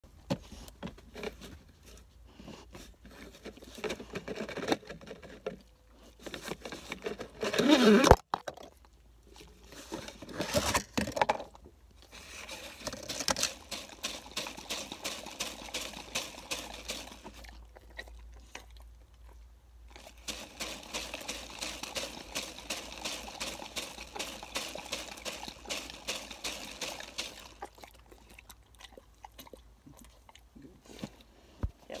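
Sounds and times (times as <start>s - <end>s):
dog lapping from a cup: 13.0s - 18.9s, 19.9s - 31.2s.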